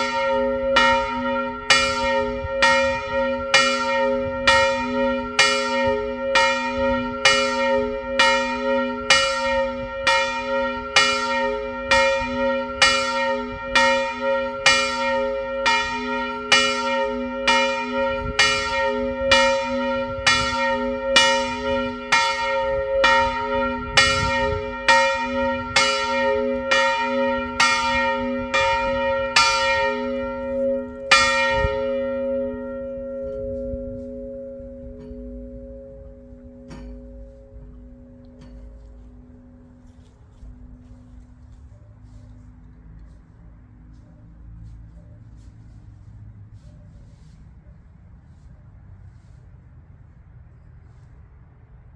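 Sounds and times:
large church bell ringing: 0:00.0 - 0:46.0.

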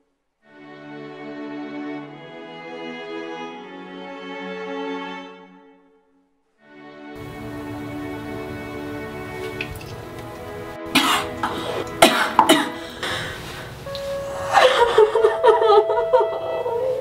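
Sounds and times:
soft string music: 0:00.4 - 0:17.0
woman gagging and retching: 0:11.0 - 0:13.1.

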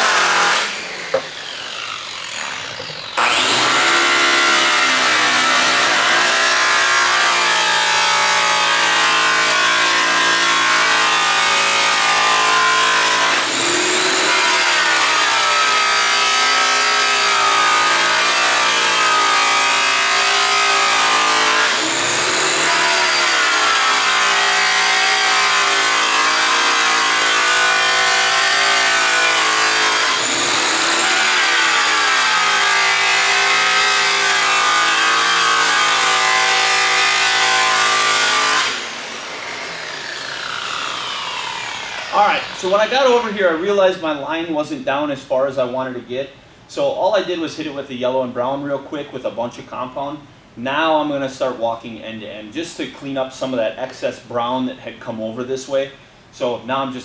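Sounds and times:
electric buffer running: 0:00.0 - 0:43.7.

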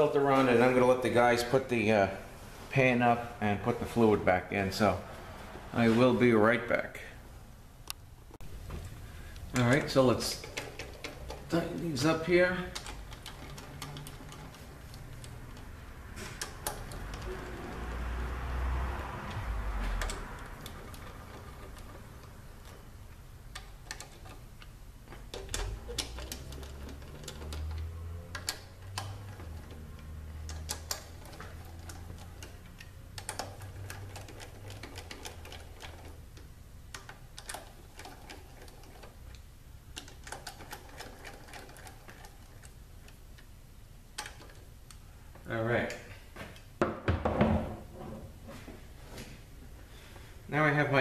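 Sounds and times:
hand ratchet clicking: 0:09.4 - 0:18.5, 0:19.2 - 0:43.5.

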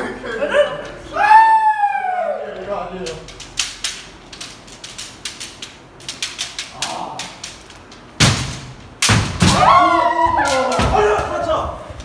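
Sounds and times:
bamboo swords clacking: 0:03.1 - 0:11.5
loud hits with thumps: 0:08.2 - 0:09.8.

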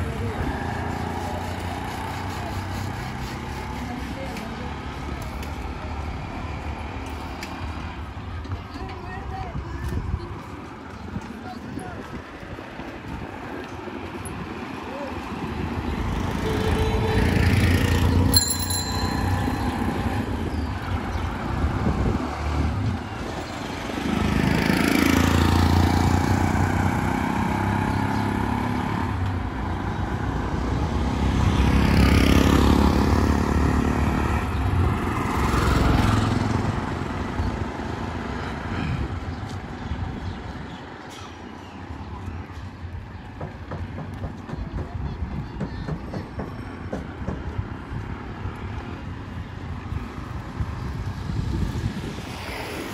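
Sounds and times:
vehicles passing: 0:00.0 - 0:52.9
short high ringing tone: 0:16.4 - 0:20.7.

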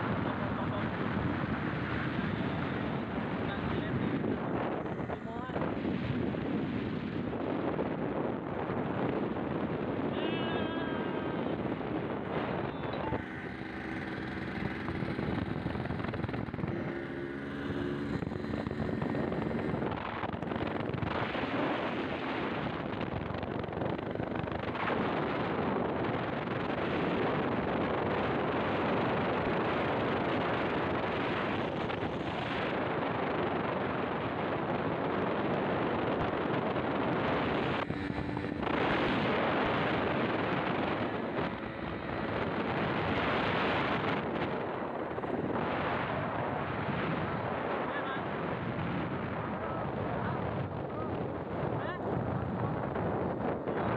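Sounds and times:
wind rushing on microphone: 0:00.0 - 0:53.9
two-stroke motorcycle engine: 0:11.2 - 0:45.7.

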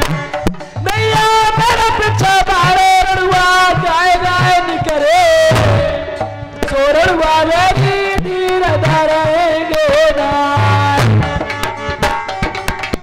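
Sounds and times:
hand drum thumps: 0:00.0 - 0:03.6, 0:11.0 - 0:13.0
person singing with vibrato: 0:00.0 - 0:11.5.

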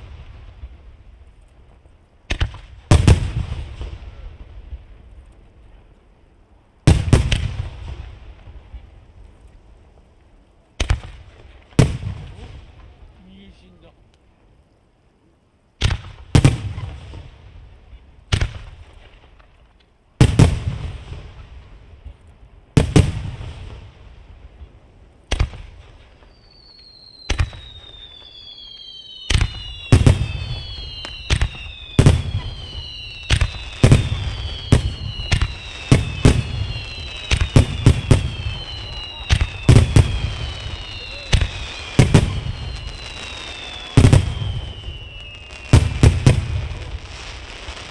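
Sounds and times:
fireworks bursting in sharp bangs: 0:02.2 - 0:05.0, 0:06.8 - 0:08.8, 0:10.8 - 0:13.2, 0:15.8 - 0:24.7, 0:25.3 - 0:47.9
whistling fireworks shells: 0:25.3 - 0:47.9.

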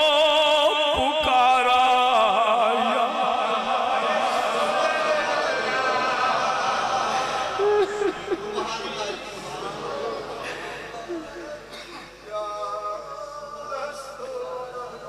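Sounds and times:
man chanting through microphone: 0:00.0 - 0:06.1, 0:11.2 - 0:15.0.

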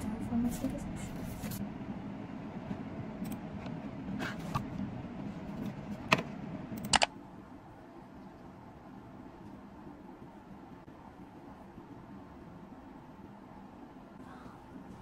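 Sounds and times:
low background rumble: 0:00.0 - 0:15.0
sharp clicks: 0:06.8 - 0:07.1.

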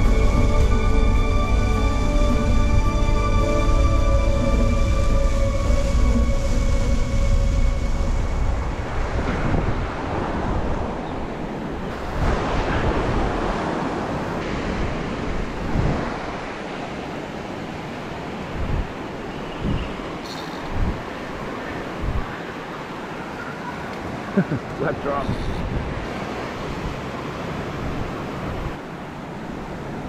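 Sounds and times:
music: 0:00.0 - 0:08.8
wind on microphone: 0:00.0 - 0:22.6, 0:24.0 - 0:28.8
ocean surf breaking on beach: 0:05.9 - 0:30.0.

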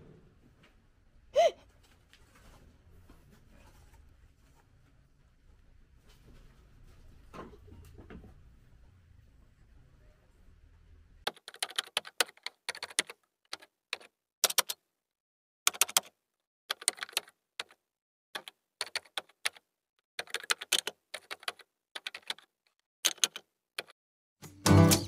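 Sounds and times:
faint low hum: 0:00.0 - 0:11.2
keyboard keys clicking: 0:11.3 - 0:14.8, 0:15.7 - 0:16.1, 0:16.7 - 0:17.8, 0:18.4 - 0:19.6, 0:20.2 - 0:22.5, 0:23.1 - 0:23.9.

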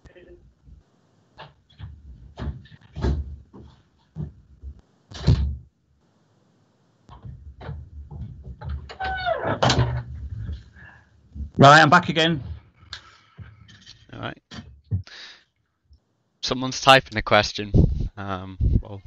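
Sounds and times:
door: 0:01.4 - 0:04.3, 0:05.1 - 0:05.6, 0:07.1 - 0:10.6
sharp knocks and thumps: 0:01.4 - 0:05.7, 0:07.1 - 0:12.7, 0:13.3 - 0:15.1.

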